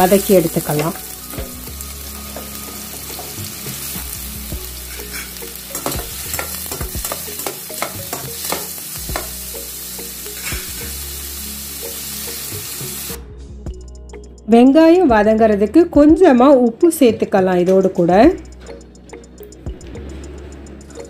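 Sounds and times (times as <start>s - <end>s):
onions sizzling in oil: 0.0s - 13.2s.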